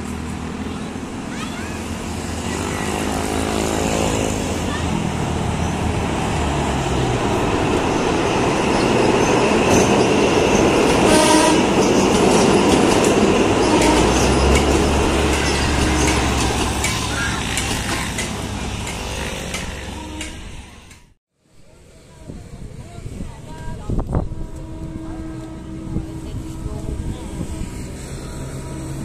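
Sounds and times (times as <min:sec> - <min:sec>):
diesel train rumble: 0:00.0 - 0:29.0
train horn toot: 0:11.0 - 0:11.9, 0:13.6 - 0:14.5, 0:19.8 - 0:20.6, 0:24.1 - 0:29.0
wheels clicking over rail joints: 0:11.7 - 0:21.1.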